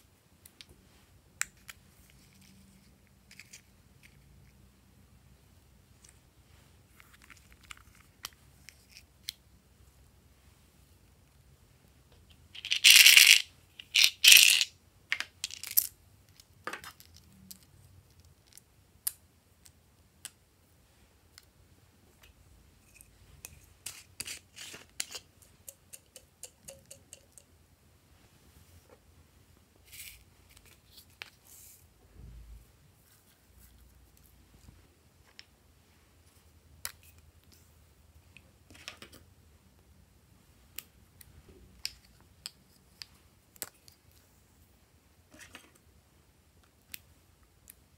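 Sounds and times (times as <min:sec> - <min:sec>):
plastic charms clicking and rattling: 0:12.6 - 0:14.7.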